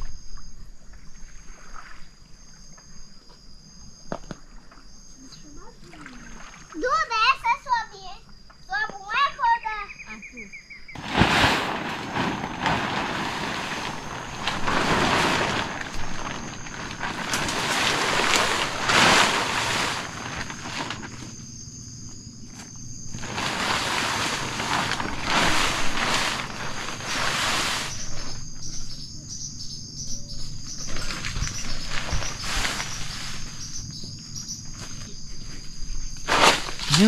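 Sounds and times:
insects trilling: 0.0s - 37.0s
plastic tarp rustling: 11.0s - 21.5s, 22.8s - 28.6s, 30.8s - 33.8s, 36.2s - 37.0s.

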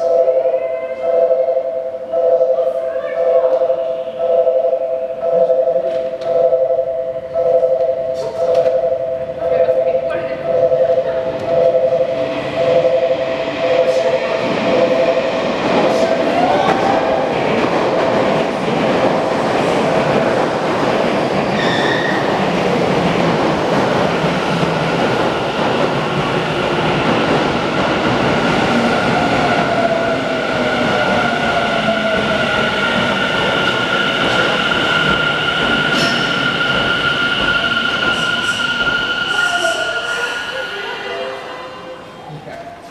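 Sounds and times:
train wheels rumbling on rail: 10.4s - 41.2s.

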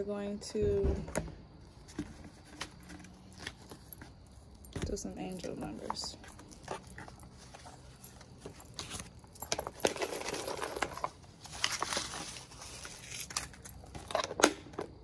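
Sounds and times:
small hard objects rattling: 4.8s - 14.3s.

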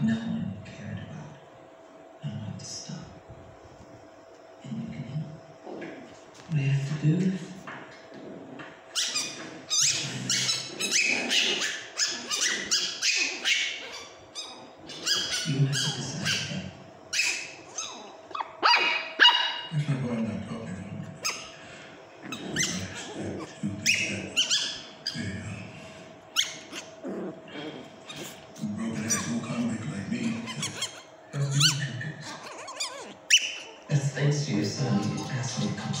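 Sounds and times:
puppies yapping: 8.8s - 19.7s, 21.2s - 25.2s, 26.3s - 33.9s.

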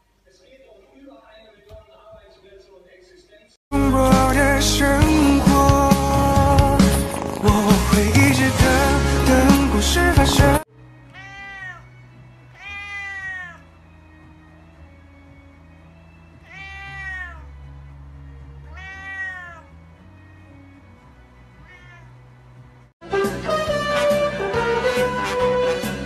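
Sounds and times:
cat meowing: 11.1s - 13.7s, 16.4s - 17.6s, 18.7s - 19.8s, 21.6s - 22.2s.

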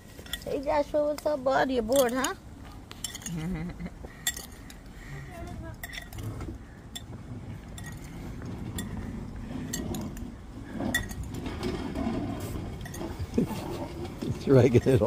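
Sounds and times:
metal spoon clinking glass bowl: 3.0s - 3.4s.

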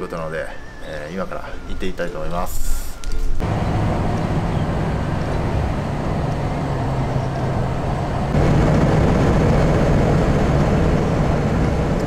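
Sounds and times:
van engine and road noise drone: 3.4s - 12.0s.

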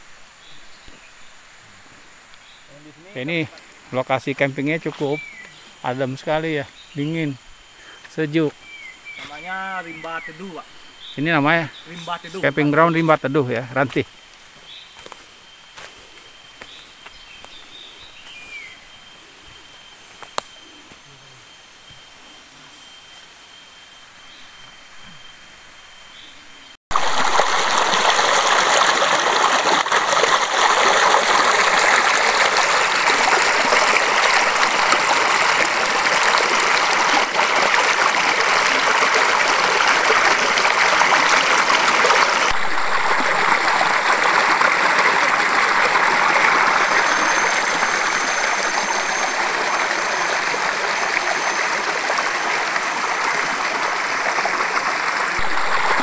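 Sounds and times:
waterfall rushing: 26.9s - 56.0s.

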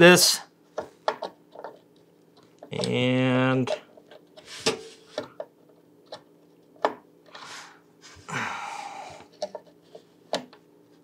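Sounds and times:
heavy breaths: 7.4s - 9.4s.

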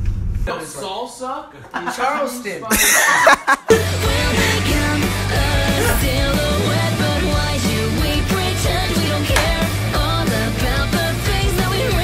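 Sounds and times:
rock music with bass line: 3.7s - 12.0s.

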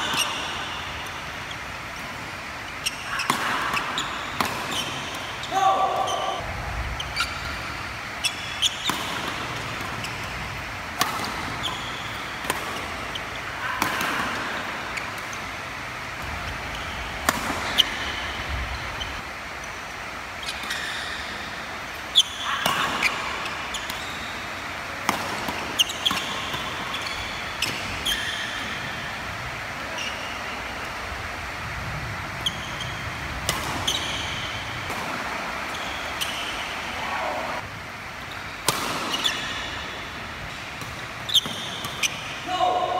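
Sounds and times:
shoes squeaking on court floor: 0.0s - 13.5s, 14.8s - 21.4s, 22.1s - 29.0s, 29.8s - 31.0s, 32.3s - 37.6s, 38.2s - 42.4s
racket striking shuttlecock: 3.2s - 5.5s, 8.3s - 18.6s, 20.5s - 29.3s, 33.4s - 36.8s, 38.6s - 40.0s, 40.7s - 42.4s.

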